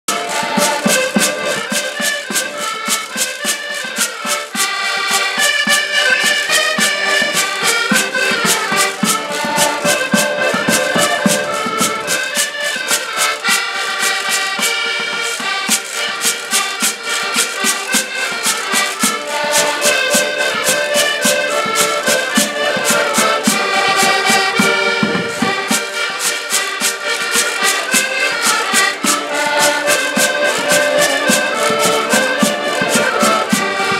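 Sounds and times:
button accordions playing: 0.0 - 33.9
wooden scraper rhythm: 0.1 - 33.9
drum beat: 6.8 - 12.5, 28.6 - 33.9.

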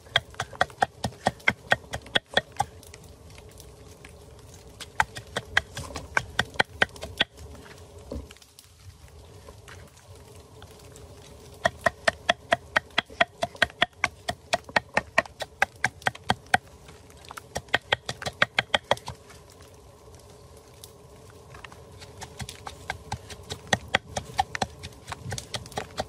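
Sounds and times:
pestle pounding in wooden mortar: 0.0 - 2.7, 4.8 - 7.3, 11.6 - 16.6, 17.5 - 19.1, 22.0 - 26.0.

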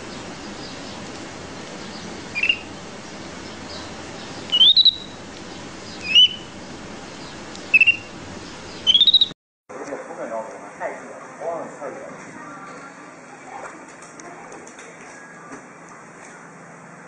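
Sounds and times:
monkey high-pitched peeps: 2.4 - 2.7, 4.4 - 5.2, 6.0 - 6.5, 7.7 - 8.1, 8.8 - 9.3.

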